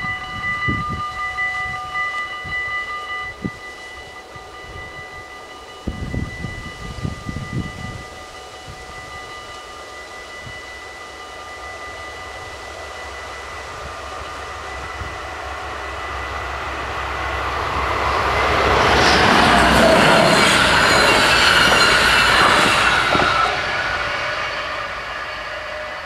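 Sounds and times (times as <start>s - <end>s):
electric train rumble and wheel noise: 0.0s - 26.0s
level crossing bells ringing: 7.9s - 23.5s.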